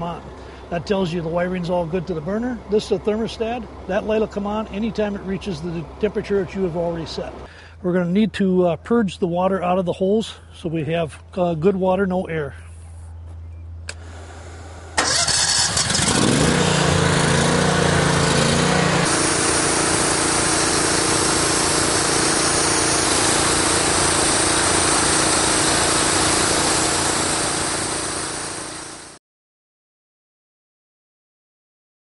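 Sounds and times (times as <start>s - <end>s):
pressure washer engine running: 0.0s - 7.5s, 13.9s - 29.2s
high spraying hiss: 19.0s - 29.1s.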